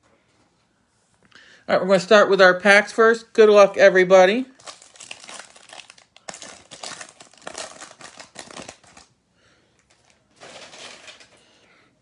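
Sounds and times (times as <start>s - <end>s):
foil wrapper crinkling: 4.5s - 9.1s, 9.8s - 11.4s.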